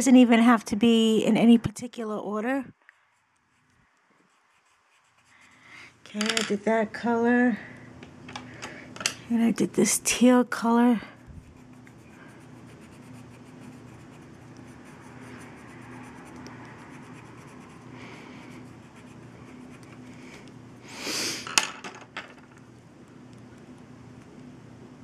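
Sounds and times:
low steady hum: 0:00.0 - 0:25.0
colored pencil scratching on card: 0:03.1 - 0:05.8, 0:11.2 - 0:20.1.

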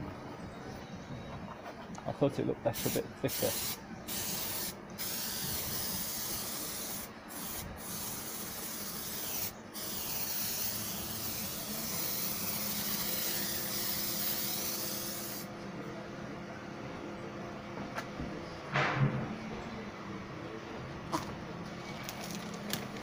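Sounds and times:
aerosol spray can hissing: 0:02.8 - 0:15.5.

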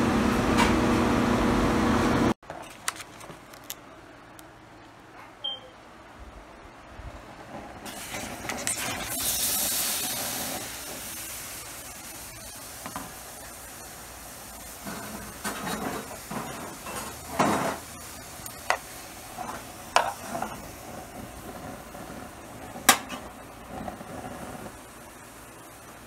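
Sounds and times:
shrimp sizzling in a skillet: 0:07.8 - 0:26.0
utensil scraping pan: 0:14.8 - 0:18.0, 0:18.6 - 0:21.6.

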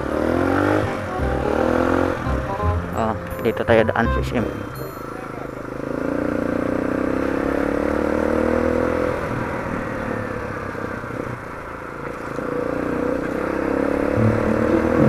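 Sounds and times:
dirt bike engine running: 0:05.5 - 0:15.0.

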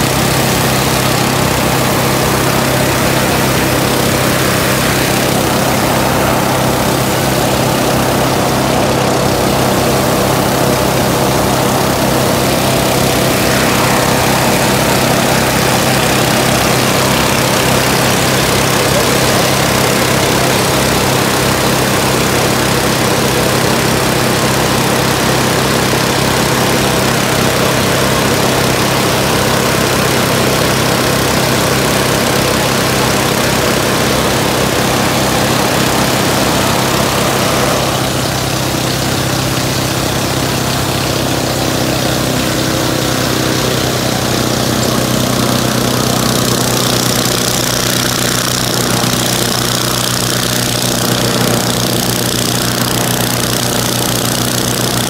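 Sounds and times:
balloon burner roaring: 0:00.0 - 0:55.0
engine-like hum: 0:00.0 - 0:55.0.

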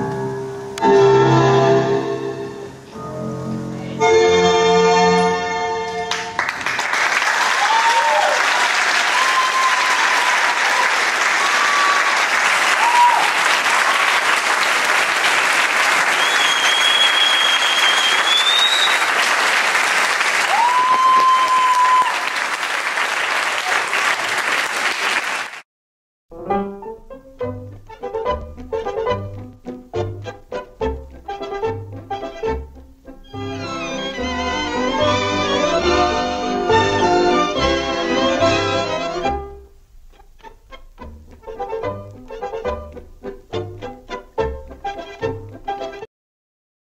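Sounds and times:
tango music with piano: 0:00.0 - 0:06.4, 0:26.3 - 0:46.1
audience applauding: 0:06.1 - 0:25.6
whistles from audience: 0:16.0 - 0:19.2, 0:20.5 - 0:22.2.

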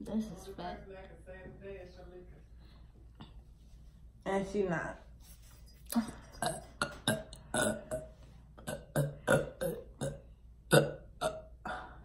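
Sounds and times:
girl burping: 0:06.0 - 0:12.0.

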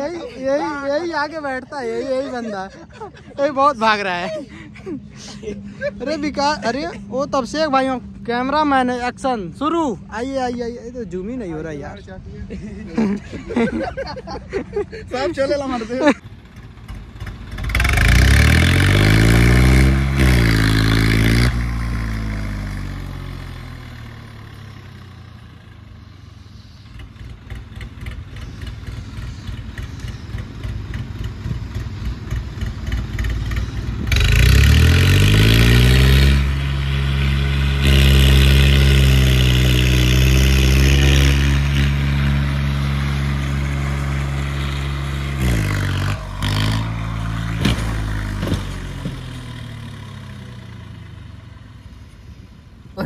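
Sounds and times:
tractor diesel engine revving: 0:13.4 - 0:53.0.

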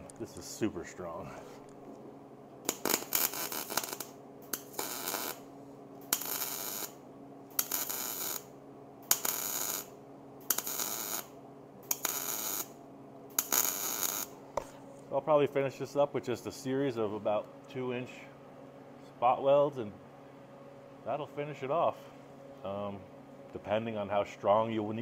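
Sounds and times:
welding arc bursts: 0:02.7 - 0:05.4, 0:06.0 - 0:14.3.

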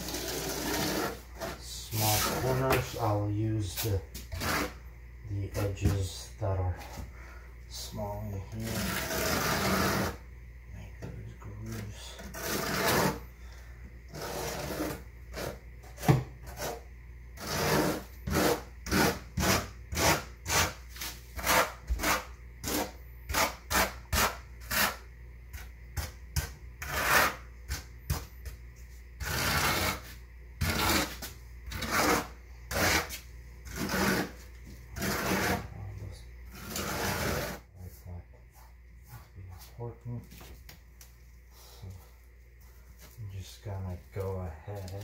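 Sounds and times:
trowel scraping through mortar: 0:00.0 - 0:04.8, 0:08.6 - 0:10.2, 0:11.7 - 0:13.3, 0:14.1 - 0:16.8, 0:17.4 - 0:25.0, 0:26.4 - 0:27.9, 0:29.2 - 0:34.4, 0:35.0 - 0:35.7, 0:36.5 - 0:37.7.

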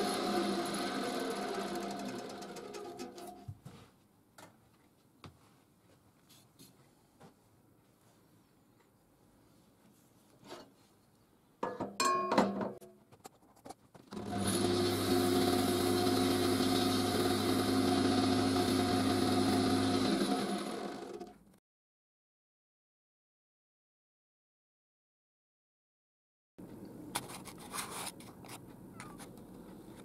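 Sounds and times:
lathe motor humming: 0:00.0 - 0:03.3, 0:14.2 - 0:21.3.

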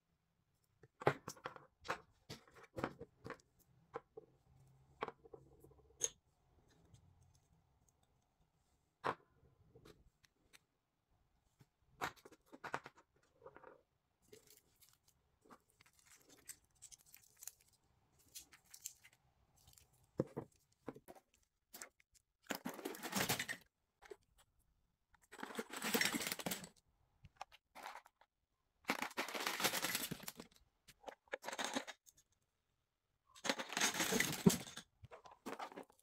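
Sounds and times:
plastic items clattering in bin: 0:22.5 - 0:23.6, 0:25.4 - 0:26.7, 0:28.9 - 0:30.5, 0:33.4 - 0:34.8.

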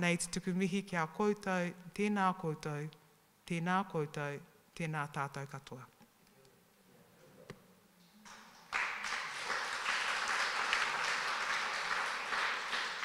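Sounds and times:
small audience applauding: 0:08.3 - 0:13.0.

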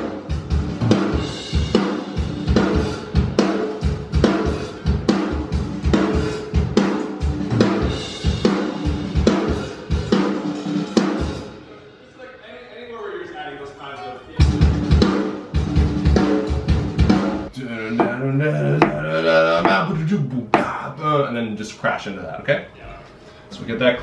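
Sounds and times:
drum kit playing rock beat: 0:00.0 - 0:11.6, 0:14.4 - 0:18.2, 0:18.8 - 0:20.0.

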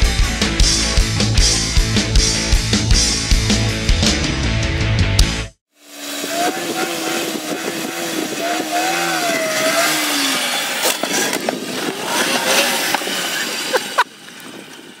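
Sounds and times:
small motorbike engine revving: 0:05.7 - 0:14.6.

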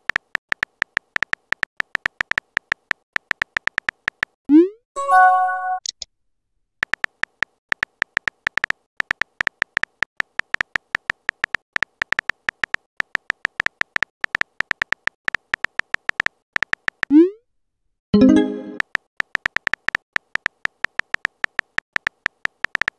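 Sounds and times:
keyboard typing beeps: 0:18.2 - 0:22.9.

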